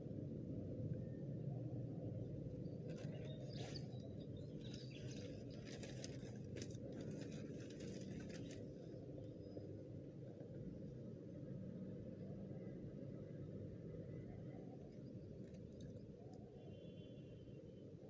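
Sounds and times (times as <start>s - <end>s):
low background rumble: 0.0s - 16.6s.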